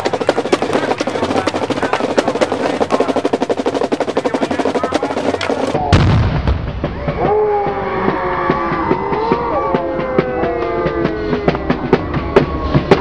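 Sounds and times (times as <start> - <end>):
snare drum roll: 0.0 - 13.0
cannon firing boom: 5.7 - 7.0
music: 8.0 - 13.0.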